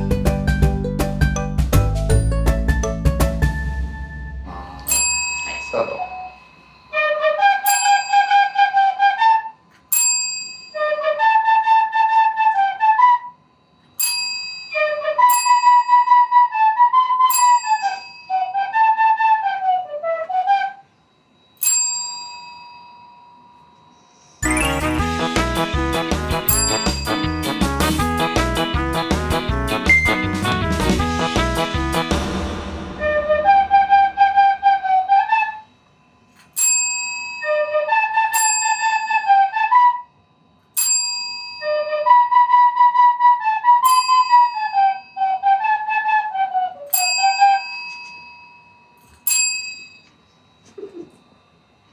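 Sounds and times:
call bell ding: 0:04.9 - 0:06.9, 0:24.4 - 0:25.2, 0:26.5 - 0:27.4, 0:47.0 - 0:50.2
desk call bell ding: 0:04.9 - 0:06.9, 0:07.7 - 0:08.3, 0:14.0 - 0:15.9, 0:17.4 - 0:18.3, 0:21.6 - 0:23.7, 0:26.5 - 0:27.4, 0:36.6 - 0:37.5, 0:38.4 - 0:39.1, 0:40.8 - 0:41.6, 0:43.9 - 0:45.3, 0:47.0 - 0:50.2
recorder melody: 0:24.4 - 0:35.7.

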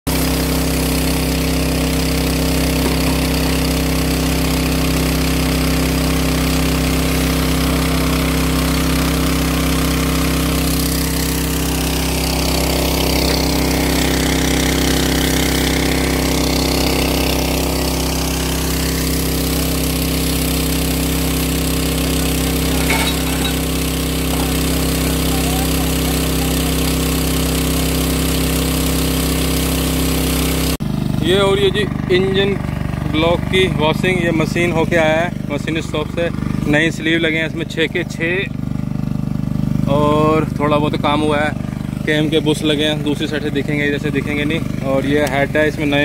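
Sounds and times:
pressure washer pump running: 0:00.1 - 0:46.0
water jet hissing on metal: 0:00.2 - 0:30.6.

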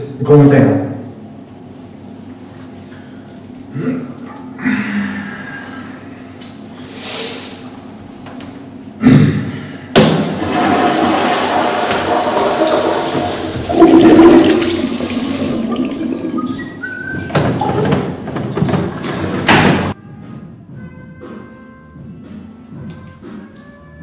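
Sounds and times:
toilet flushing: 0:10.1 - 0:20.0.

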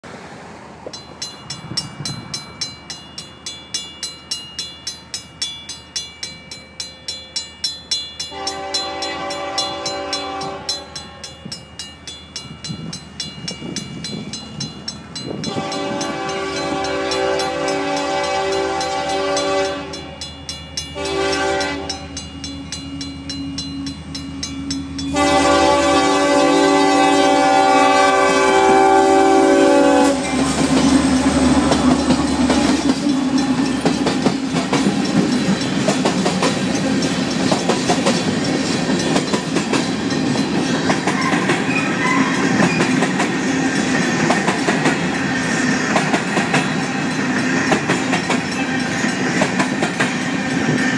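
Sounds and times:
train wheels clickety-clacking: 0:00.8 - 0:27.4, 0:29.8 - 0:50.9
crossing bell ringing: 0:00.8 - 0:50.9
locomotive air horn blasts: 0:08.3 - 0:11.3, 0:15.5 - 0:20.2, 0:21.0 - 0:22.1, 0:25.1 - 0:30.5.

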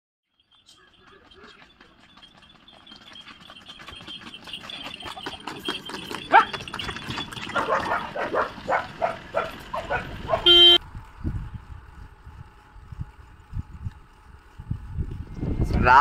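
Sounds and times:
dog barking: 0:06.3 - 0:06.6, 0:07.5 - 0:10.6
loud steady beep: 0:10.5 - 0:10.8.

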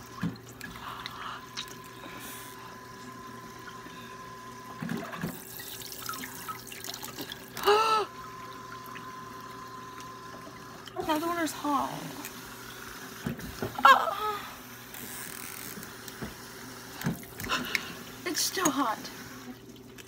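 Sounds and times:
person exclaiming: 0:07.6 - 0:08.1, 0:13.8 - 0:14.5.

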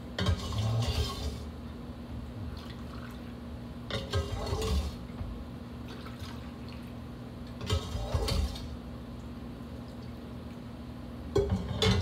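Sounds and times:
steady low hum: 0:00.0 - 0:12.0
metal utensil scraping a pot: 0:00.2 - 0:01.5, 0:03.9 - 0:05.0, 0:07.6 - 0:08.7, 0:11.4 - 0:12.0.

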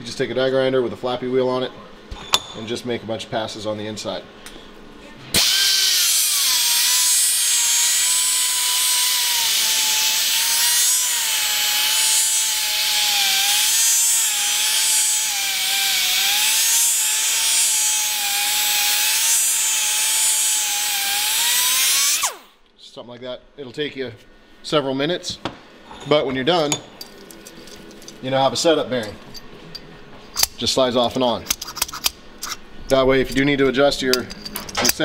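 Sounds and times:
die grinder whining: 0:05.4 - 0:22.5.

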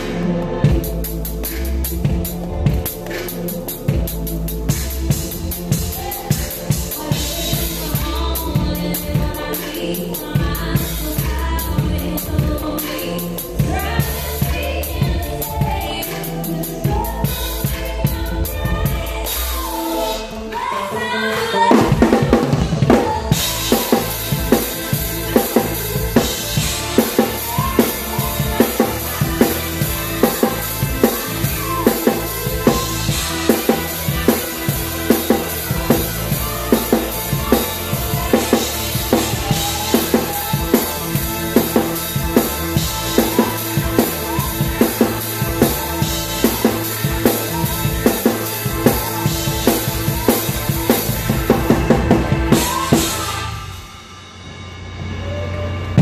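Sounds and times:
drums playing a beat: 0:00.0 - 0:56.0
live band music: 0:00.0 - 0:56.0
woman singing: 0:05.7 - 0:53.9
cymbals washing: 0:22.9 - 0:56.0.

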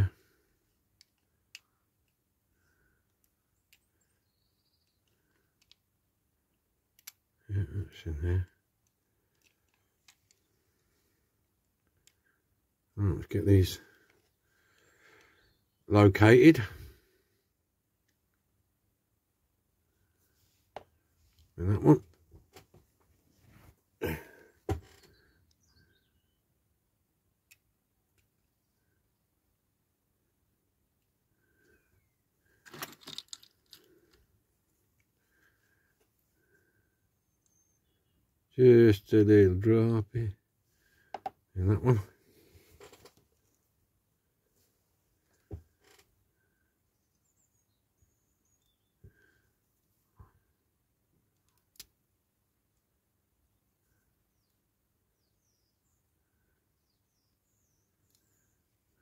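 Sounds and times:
toy car parts clicking: 0:05.0 - 0:05.8, 0:07.0 - 0:07.2, 0:32.6 - 0:33.9.

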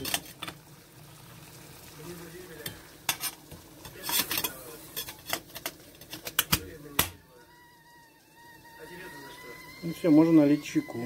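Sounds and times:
metal kettle clicking and clanking: 0:00.0 - 0:00.6, 0:03.1 - 0:07.2
low steady hiss: 0:00.0 - 0:11.0.

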